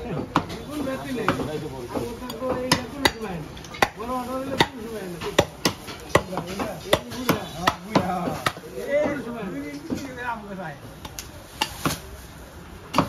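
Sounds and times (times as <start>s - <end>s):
voices talking: 0.0s - 11.2s
cleaver chopping meat: 1.3s - 8.6s.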